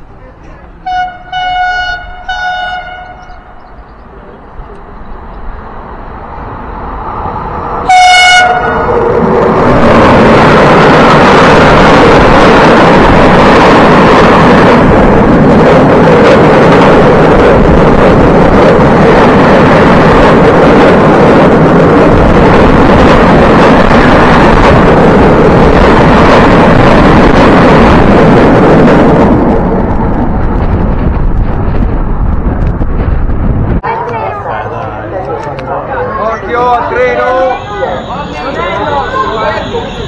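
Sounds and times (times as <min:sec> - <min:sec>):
train wheels rumbling on rails: 0:00.0 - 0:40.0
train horn blast: 0:00.8 - 0:03.5, 0:07.8 - 0:08.9, 0:37.2 - 0:40.0.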